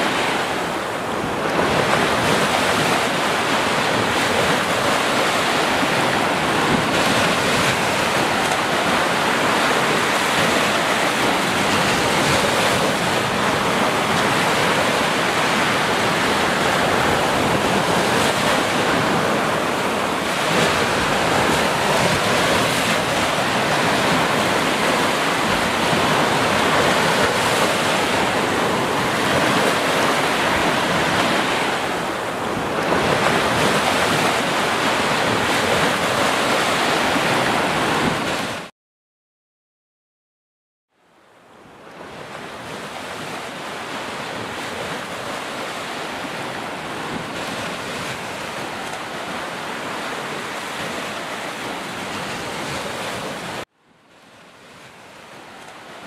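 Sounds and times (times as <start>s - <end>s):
waves breaking on sandy beach: 0.0s - 38.7s, 41.3s - 56.0s.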